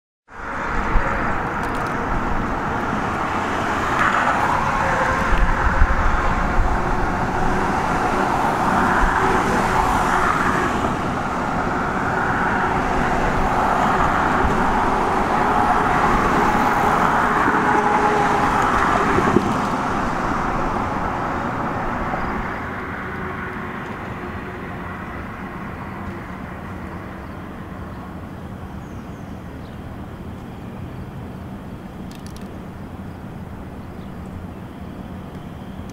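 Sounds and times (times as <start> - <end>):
rushing vehicle noise: 0.3 - 35.9.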